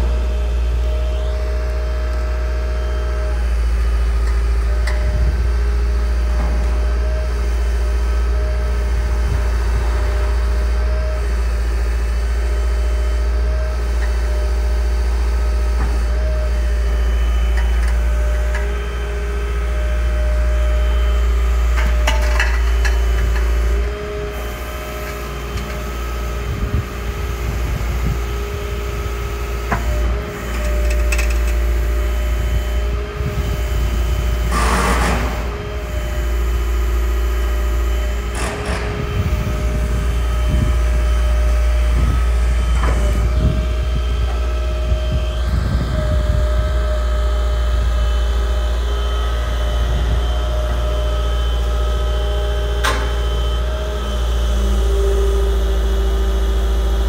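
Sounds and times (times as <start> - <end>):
excavator diesel engine running: 0.0 - 57.0
noisy rattle: 34.4 - 36.1.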